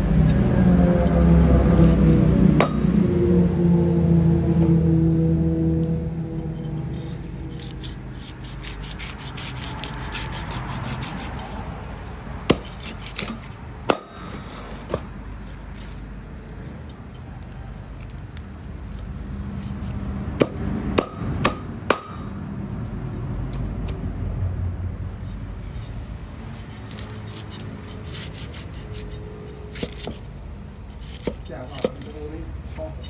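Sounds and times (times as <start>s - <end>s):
blade knocking on wooden board: 2.6s - 2.8s
knife scraping fish: 6.5s - 11.6s, 25.2s - 32.1s.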